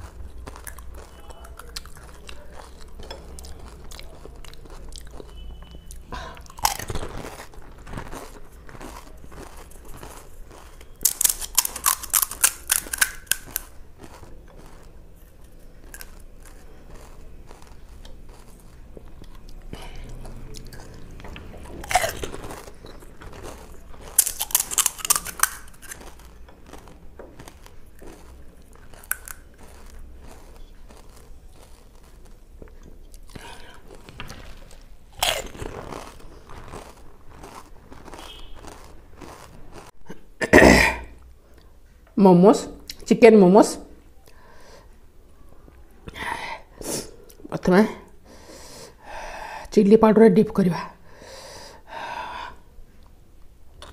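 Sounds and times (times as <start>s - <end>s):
chewing: 0.0s - 40.3s
crisp shells crackling: 6.5s - 19.2s, 21.6s - 32.6s, 33.2s - 39.9s.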